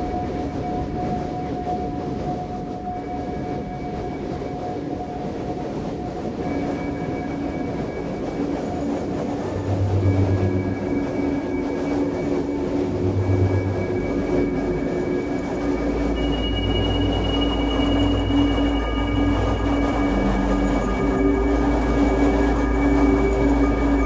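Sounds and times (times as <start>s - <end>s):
dense noisy electronic drone: 0.0s - 24.0s
held electronic tones: 9.4s - 24.0s
deep bass swell: 9.5s - 11.3s, 12.6s - 24.0s.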